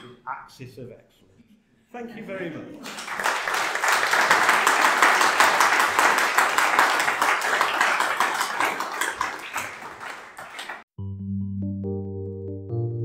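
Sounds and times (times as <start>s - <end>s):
audience applauding: 2.8s - 10.9s.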